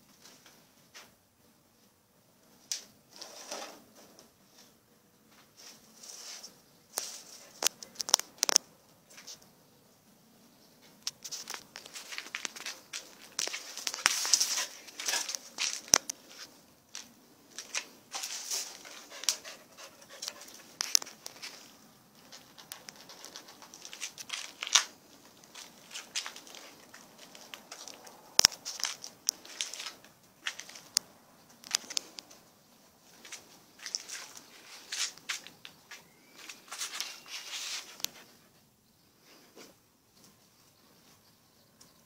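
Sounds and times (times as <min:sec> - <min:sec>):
plastic bottle crackling on concrete: 0:06.9 - 0:09.4, 0:11.0 - 0:19.4, 0:20.2 - 0:32.4, 0:33.2 - 0:38.0.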